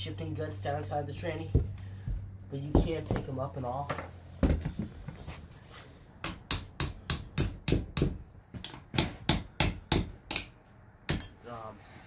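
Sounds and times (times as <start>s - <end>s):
hammer tapping on metal: 6.2s - 11.4s.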